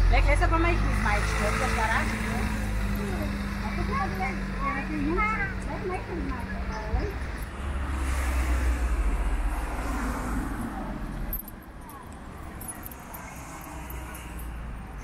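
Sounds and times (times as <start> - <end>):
cars passing: 0.0 - 15.0.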